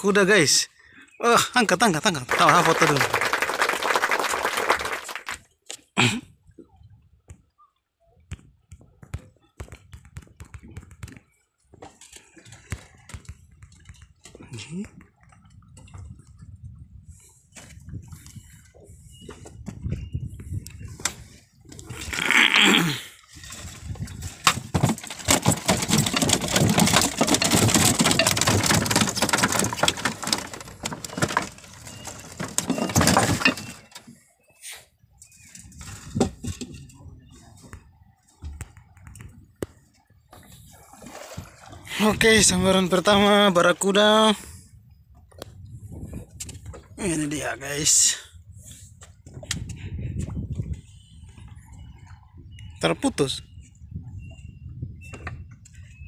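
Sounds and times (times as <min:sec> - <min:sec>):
water lapping at hull: 0:00.0 - 0:56.0
clicks and knocks in boat: 0:01.8 - 0:03.4, 0:08.3 - 0:16.4, 0:23.4 - 0:34.3, 0:35.2 - 0:44.2, 0:49.0 - 0:53.4
fish splashing: 0:40.7 - 0:41.9.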